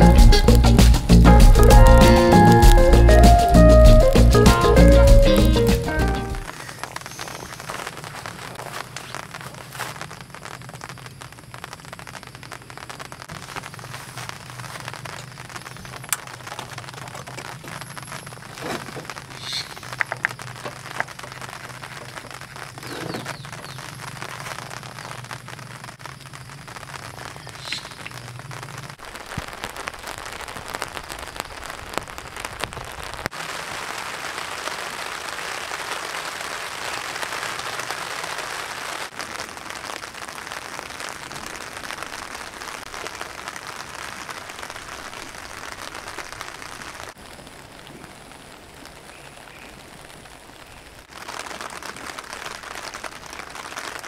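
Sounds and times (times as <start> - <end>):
rain falling: 0.0 - 54.0.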